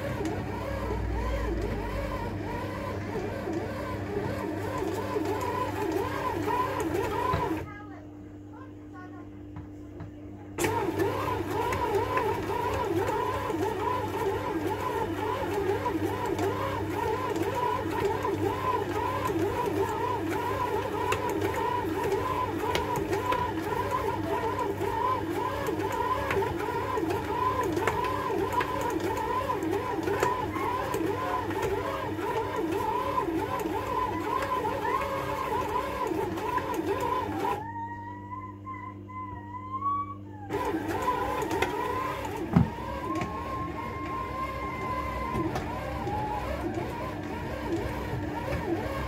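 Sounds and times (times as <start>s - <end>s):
bread machine motor hum: 0.0s - 49.0s.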